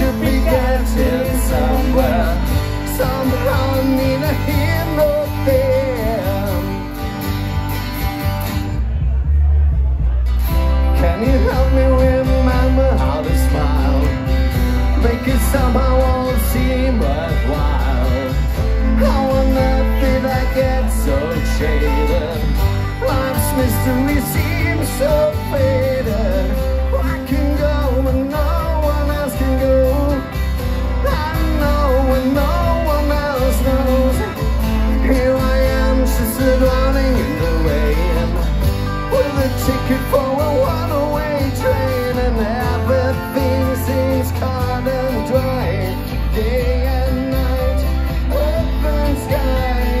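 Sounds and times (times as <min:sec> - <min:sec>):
person singing: 0:00.0 - 0:06.9, 0:10.8 - 0:50.0
acoustic guitars strummed: 0:00.0 - 0:50.0
upright double bass: 0:00.0 - 0:50.0.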